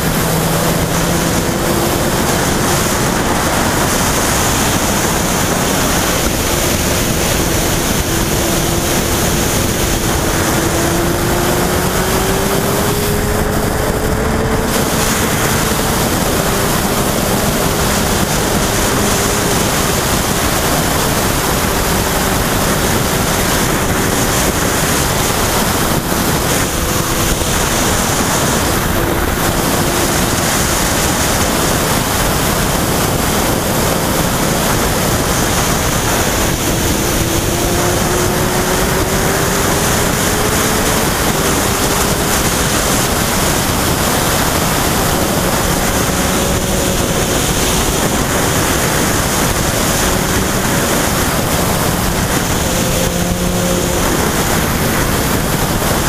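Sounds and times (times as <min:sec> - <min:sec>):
faint motorcycle engine: 0:00.0 - 0:56.0
wind rushing over microphone: 0:00.0 - 0:56.0.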